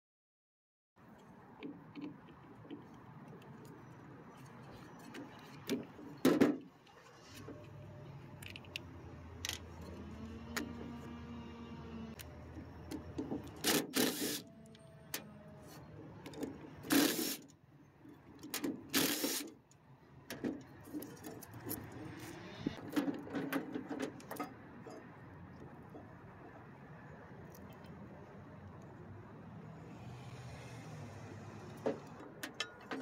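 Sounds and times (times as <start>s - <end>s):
cordless drill bursts: 13.6s - 14.4s, 16.9s - 17.4s, 18.9s - 19.5s.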